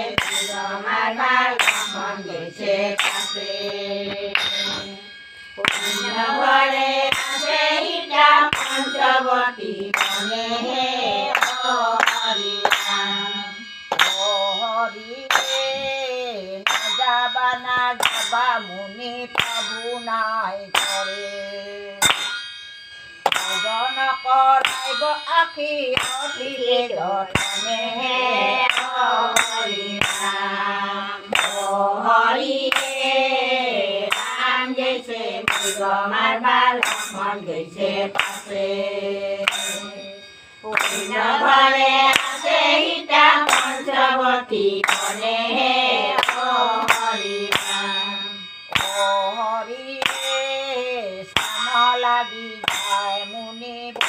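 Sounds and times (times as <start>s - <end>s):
women singing a devotional chant: 0.0s - 22.3s, 23.2s - 54.0s
ringing metal strike: 0.0s - 54.0s
hand clapping: 0.1s - 0.6s, 1.6s - 2.1s, 3.0s - 5.0s, 5.6s - 6.4s, 7.1s - 7.5s, 8.3s - 9.0s, 9.8s - 10.3s, 11.3s - 13.2s, 13.9s - 14.3s, 15.3s - 15.7s, 16.7s - 17.0s, 17.8s - 18.4s, 19.3s - 19.8s, 20.7s - 21.1s, 22.0s - 22.4s, 23.2s - 23.8s, 24.6s - 25.0s, 26.0s - 26.3s, 28.6s - 30.4s, 31.3s - 31.8s, 32.7s - 33.2s, 34.1s - 34.6s, 35.5s - 35.8s, 36.8s - 37.3s, 38.1s - 38.6s, 39.4s - 40.0s, 40.7s - 44.2s, 44.8s - 47.8s, 48.7s - 49.1s, 50.0s - 50.4s, 51.4s - 51.7s, 52.6s - 53.0s.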